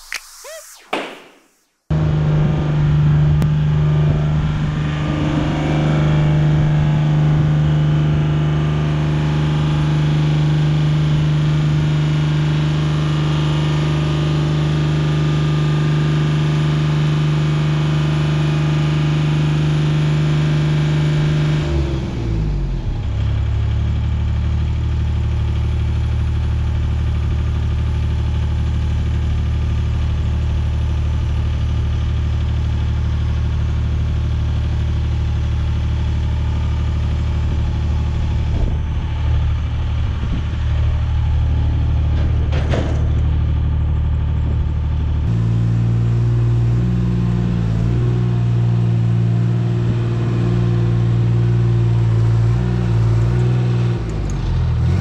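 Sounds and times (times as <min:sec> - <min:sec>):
lift engine running: 0:30.0 - 0:46.8.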